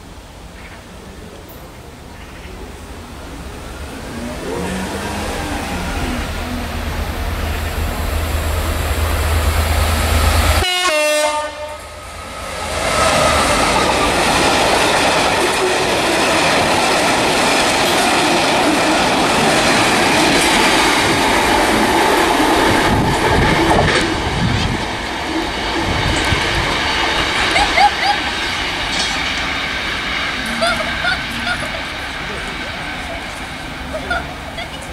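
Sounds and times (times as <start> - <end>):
locomotive engine rumble: 0.0 - 34.9
train horn: 10.6 - 12.0.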